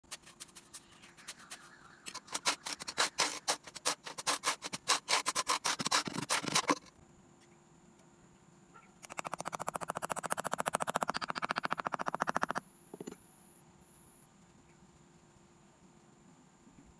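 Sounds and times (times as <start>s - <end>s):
bar scraping damp sand: 0.1s - 6.9s.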